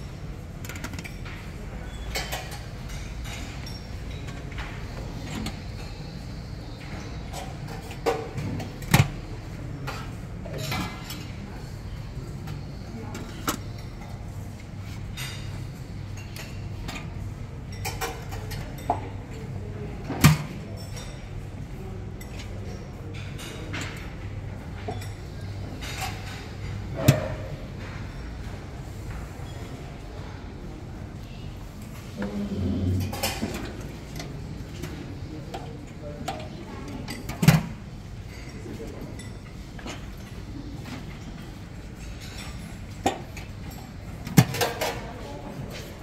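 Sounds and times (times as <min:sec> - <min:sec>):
crockery and cutlery clinking: 0:00.1 - 0:29.8, 0:31.9 - 0:46.0.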